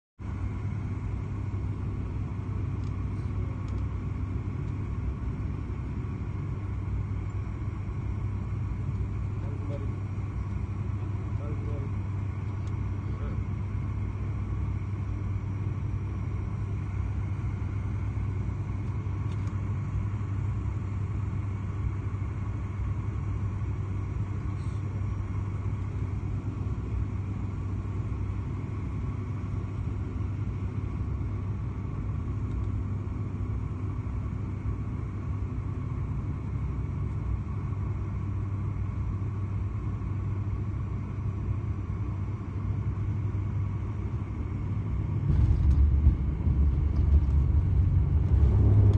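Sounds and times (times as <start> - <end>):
airliner engines droning: 0.2 - 48.9
faint steady hum: 0.2 - 48.9
deep low rumble: 44.8 - 48.9.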